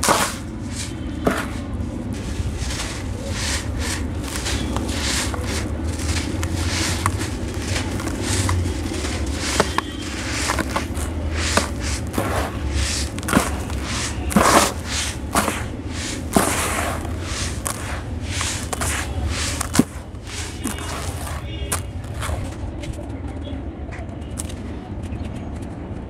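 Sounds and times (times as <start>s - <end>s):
gritty grains pouring: 0.0s - 22.5s.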